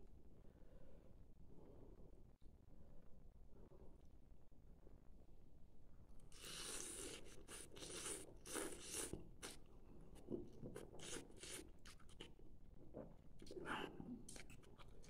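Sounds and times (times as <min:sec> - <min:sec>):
person chewing and smacking: 0:06.3 - 0:15.0.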